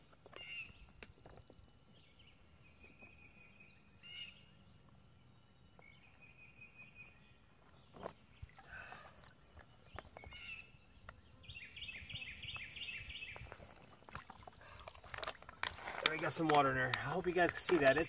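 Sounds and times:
water pouch splashing in creek: 0:07.8 - 0:10.4, 0:13.3 - 0:18.0.

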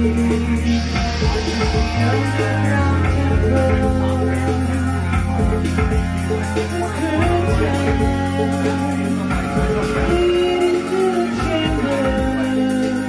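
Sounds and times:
low bass note: 0:00.0 - 0:10.4
steady drum beat: 0:00.0 - 0:13.0
synthesizer melody: 0:00.0 - 0:13.0.

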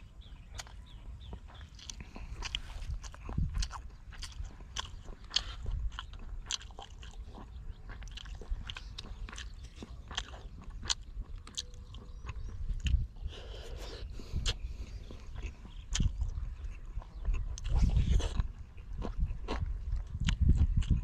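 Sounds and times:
crunching and clicking: 0:00.4 - 0:13.1, 0:14.4 - 0:21.0.

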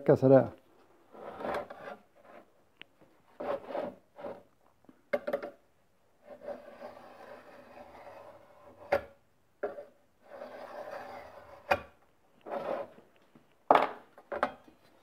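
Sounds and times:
rubbing and scraping tools: 0:01.1 - 0:02.5, 0:03.3 - 0:04.5, 0:06.2 - 0:09.1, 0:10.2 - 0:13.0.

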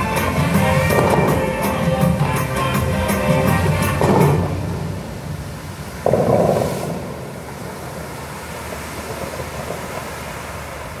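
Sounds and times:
fountain water splashing into pool: 0:03.7 - 0:11.0.

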